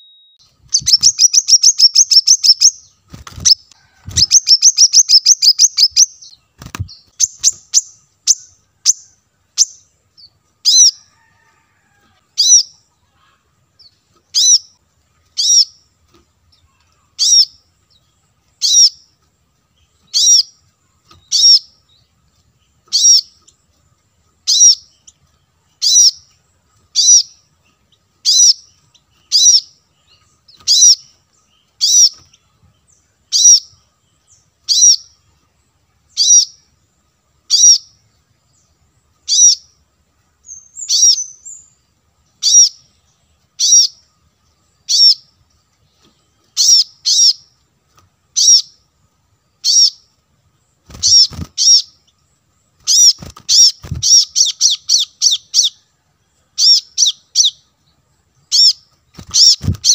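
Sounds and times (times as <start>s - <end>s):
bird trilling: 0.0s - 9.9s, 10.6s - 11.6s, 12.4s - 12.7s, 14.3s - 14.8s, 15.4s - 15.8s, 17.1s - 17.6s, 18.6s - 19.0s, 20.0s - 21.8s, 22.8s - 23.4s, 24.4s - 25.0s, 25.8s - 26.3s, 26.9s - 27.4s, 28.2s - 29.7s, 30.5s - 31.2s, 31.8s - 32.3s, 33.3s - 33.7s, 34.7s - 35.2s, 37.5s - 37.9s, 39.3s - 39.7s, 40.5s - 41.7s, 42.4s - 42.8s, 43.6s - 44.0s, 44.9s - 45.3s, 46.5s - 47.5s, 48.4s - 48.8s, 49.6s - 50.0s, 50.9s - 52.0s, 52.8s - 55.8s, 56.6s - 57.6s, 58.4s - 59.9s.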